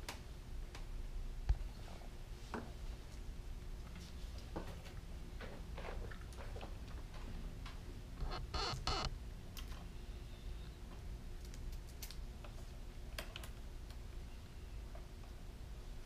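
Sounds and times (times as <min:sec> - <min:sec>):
low hum: 0:08.0 - 0:10.8
wire connectors clicking and rustling: 0:11.4 - 0:14.0.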